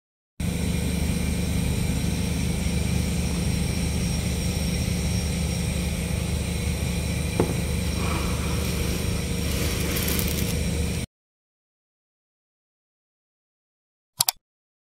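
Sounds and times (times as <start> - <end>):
mechanical hum with low drone: 0.4 - 11.1
sharp click: 14.2 - 14.4.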